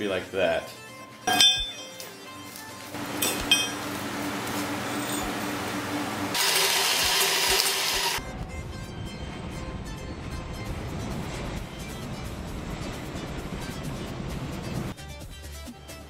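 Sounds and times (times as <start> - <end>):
background music: 0.0 - 3.8, 6.6 - 16.0
electric drill running: 6.3 - 8.2.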